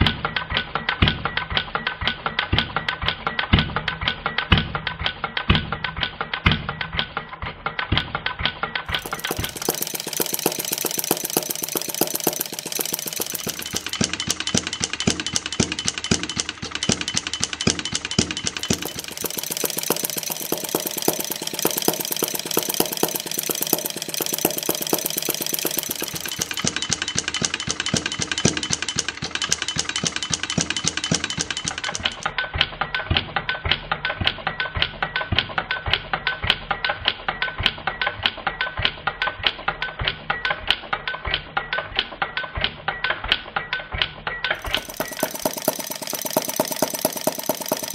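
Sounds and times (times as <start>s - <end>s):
model gas engine running: 8.9s - 32.3s, 44.5s - 47.9s.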